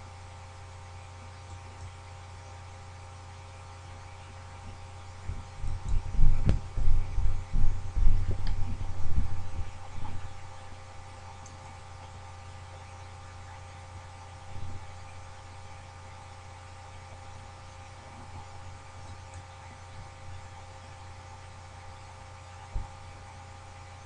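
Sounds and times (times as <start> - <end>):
low electrical hum: 0.0 - 24.0
irregular low thumps: 5.2 - 10.4.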